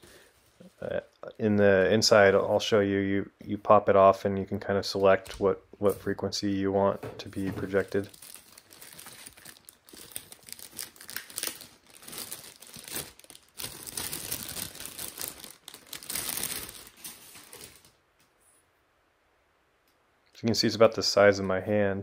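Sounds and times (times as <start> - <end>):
plastic bag crinkling: 7.4 - 18.0.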